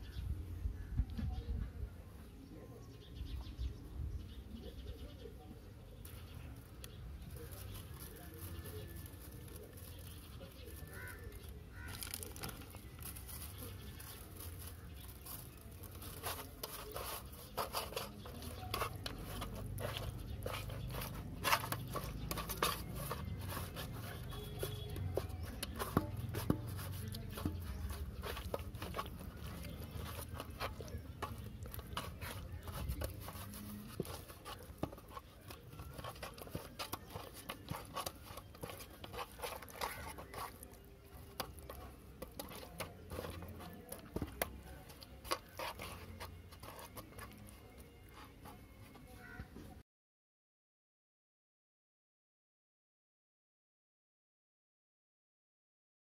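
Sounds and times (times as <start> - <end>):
wet squishing of hands on fish: 6.7 - 49.6.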